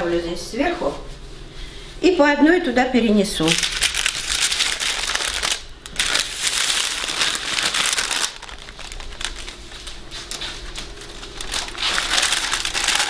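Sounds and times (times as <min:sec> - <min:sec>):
baking parchment crinkling: 0:03.5 - 0:13.0.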